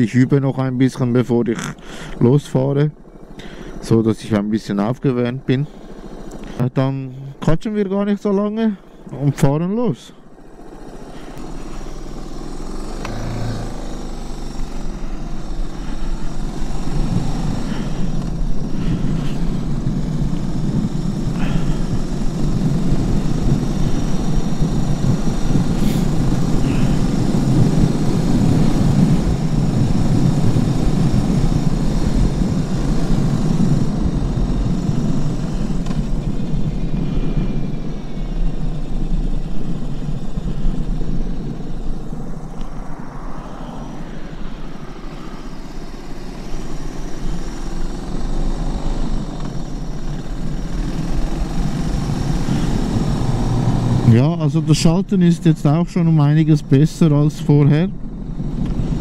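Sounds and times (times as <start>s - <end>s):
motorcycle engine riding: 0.0s - 59.0s
wind noise: 16.0s - 44.4s.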